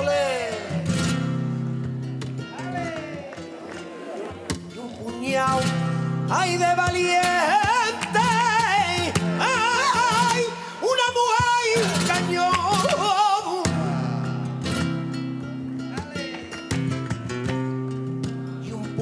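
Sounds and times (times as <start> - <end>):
man singing melismatic phrases: 0.0 - 1.0, 2.5 - 3.6, 4.7 - 14.7, 18.6 - 19.0
flamenco guitar: 0.0 - 19.0.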